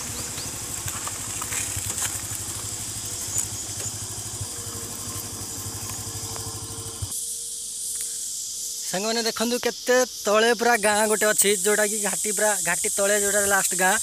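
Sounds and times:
motorcycle engine running: 0.0s - 7.2s
insects buzzing: 0.0s - 14.0s.

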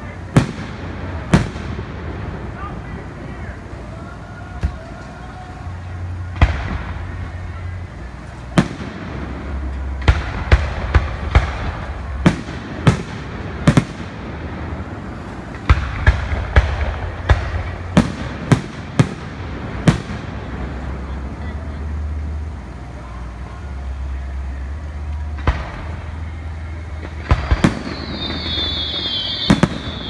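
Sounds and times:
firework shells bursting: 25.1s - 30.0s.

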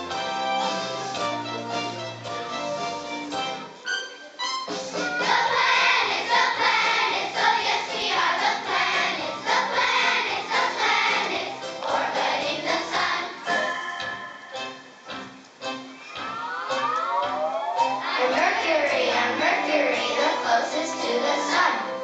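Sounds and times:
instrumental accompaniment: 0.0s - 22.0s
children's choir singing: 5.1s - 15.0s, 17.8s - 22.0s.

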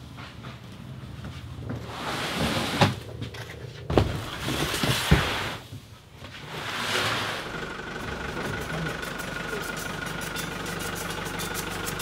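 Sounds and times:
van doors sliding: 1.5s - 7.8s.

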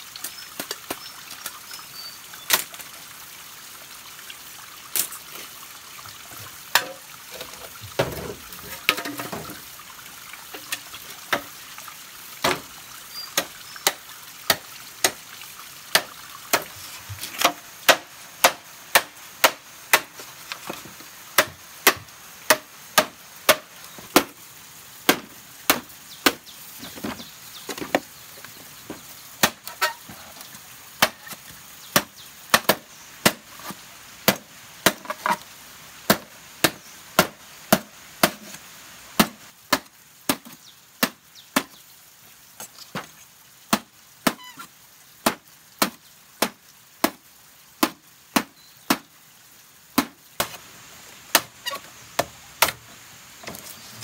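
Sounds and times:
blade chopping bamboo: 17.4s - 20.8s, 21.4s - 24.4s, 25.1s - 26.4s, 36.1s - 38.6s, 39.2s - 41.7s, 47.8s - 49.1s, 50.0s - 50.6s, 51.3s - 52.8s.

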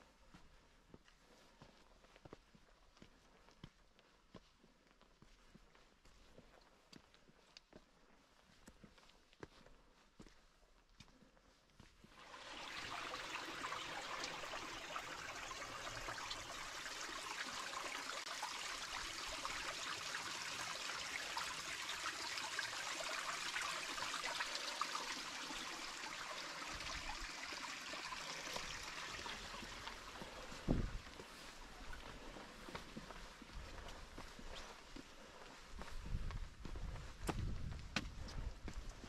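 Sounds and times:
stream water trickling: 12.1s - 34.9s.

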